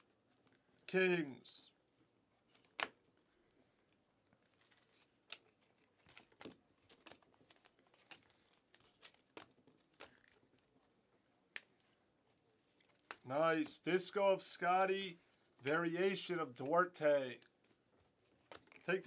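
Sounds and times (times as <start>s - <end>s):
trading cards clicking and snapping: 4.6s - 10.6s.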